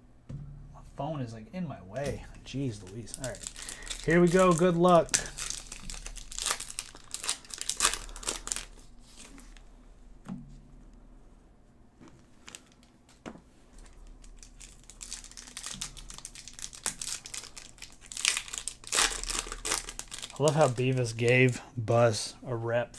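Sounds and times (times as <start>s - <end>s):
plastic wrappers crinkling and tearing: 2.0s - 9.6s, 12.4s - 13.2s, 13.8s - 21.6s.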